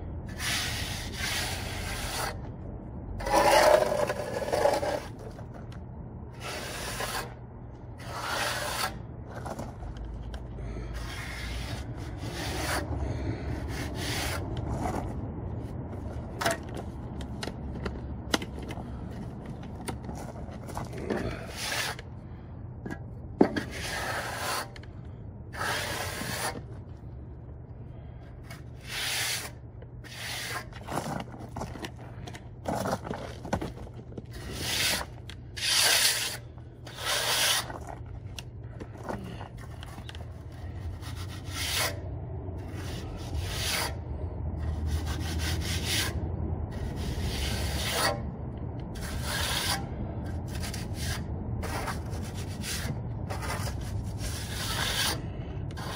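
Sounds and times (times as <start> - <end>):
steady low hum: 0.0 - 55.9
trowel scraping wet cement: 3.2 - 5.3, 6.4 - 7.3, 8.0 - 9.7, 23.6 - 24.8, 25.5 - 26.7, 28.8 - 31.8, 34.3 - 38.0, 49.0 - 49.8, 50.5 - 55.2.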